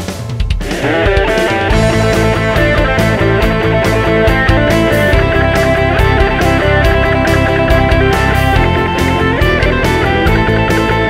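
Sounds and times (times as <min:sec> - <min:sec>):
bass: 0:00.0 - 0:11.0
steady drum beat: 0:00.0 - 0:11.0.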